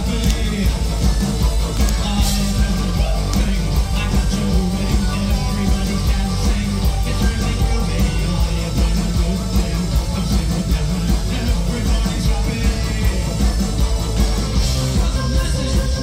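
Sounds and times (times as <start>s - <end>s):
live rock band playing: 0.0s - 16.0s.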